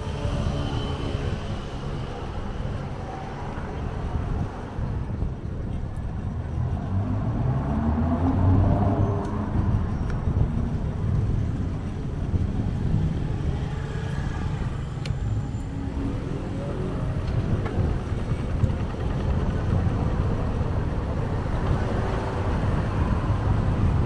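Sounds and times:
low traffic rumble: 0.0s - 24.0s
vehicle engine accelerating: 6.1s - 24.0s.

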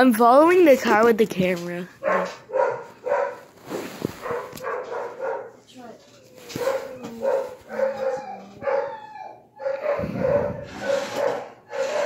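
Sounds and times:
dogs barking: 2.0s - 3.5s, 4.2s - 5.7s, 6.5s - 12.0s.

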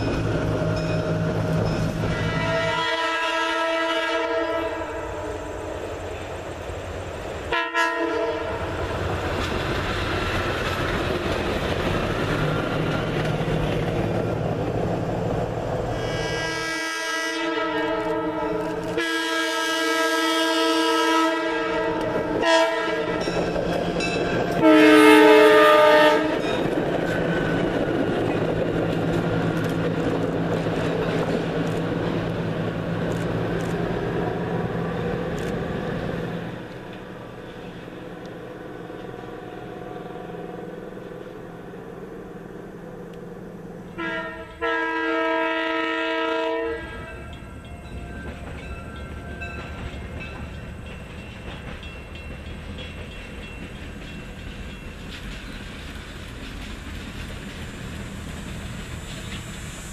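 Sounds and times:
train running past: 0.0s - 59.9s
locomotive air horn: 2.0s - 5.8s, 7.5s - 8.7s, 16.0s - 23.3s, 24.6s - 26.4s, 44.0s - 47.2s.

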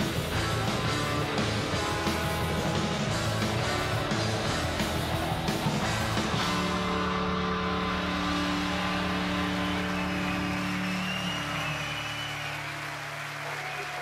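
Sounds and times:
live rock band playing: 0.0s - 11.9s.

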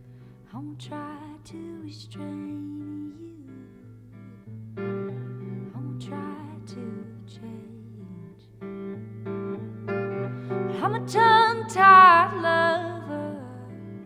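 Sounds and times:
woman singing wordlessly: 0.5s - 4.5s, 5.6s - 8.5s, 10.7s - 14.0s
guitar strumming chords: 1.1s - 14.0s.

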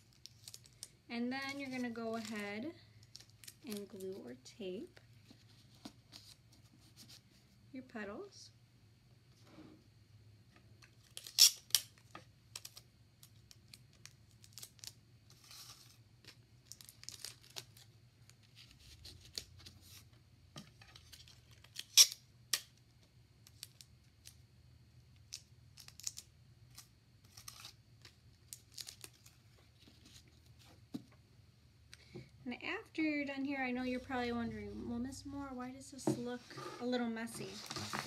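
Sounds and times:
paper or tape ripping: 11.1s - 12.0s, 21.1s - 22.6s, 25.8s - 27.8s, 37.4s - 38.0s.

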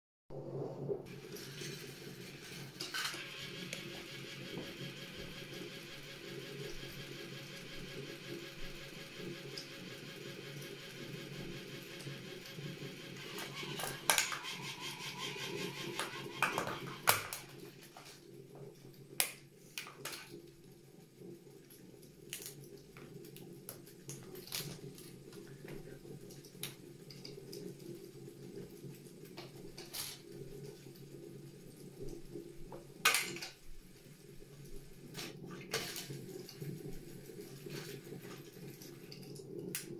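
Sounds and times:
toy train motor whirring: 1.1s - 18.0s, 29.7s - 31.1s
plastic cracking and snapping: 22.2s - 22.7s
plastic crunches and clicks: 22.2s - 25.5s.

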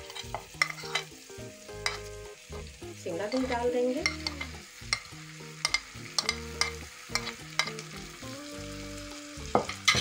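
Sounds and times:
metal spoon scraping and tapping: 0.0s - 1.1s, 1.8s - 2.1s, 3.3s - 8.0s, 9.5s - 10.0s
vegetables sizzling in pan: 0.0s - 10.0s.

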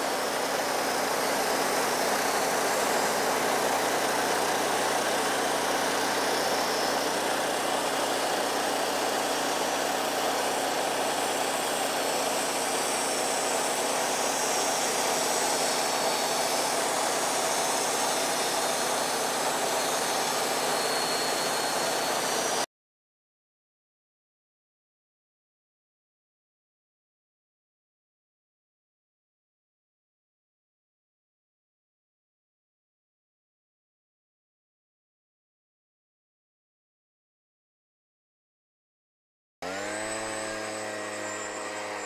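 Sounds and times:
band sawmill cutting log: 0.0s - 22.7s, 39.6s - 42.0s.

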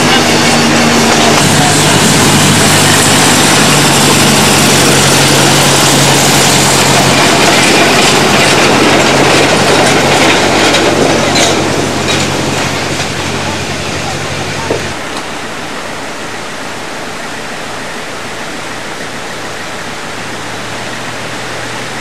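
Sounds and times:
train wheels clicking on rail joints: 0.0s - 15.3s
locomotive engine hum: 0.0s - 22.0s.

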